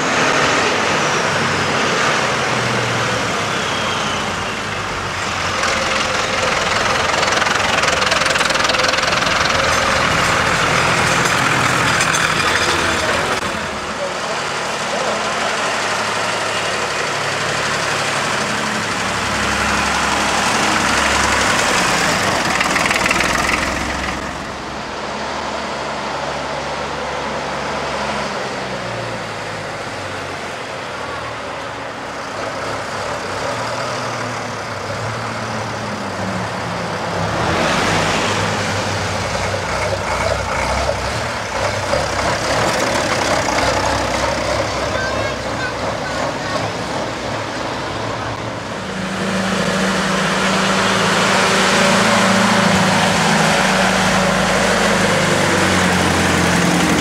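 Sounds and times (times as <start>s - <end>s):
tractor engines passing by: 0.0s - 57.0s.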